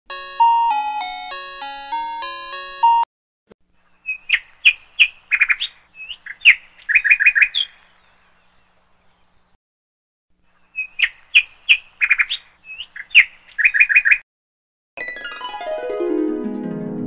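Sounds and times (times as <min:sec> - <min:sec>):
electronic intro tune: 0:00.1 - 0:03.1
bird chirps: 0:03.8 - 0:09.6, 0:10.6 - 0:14.2.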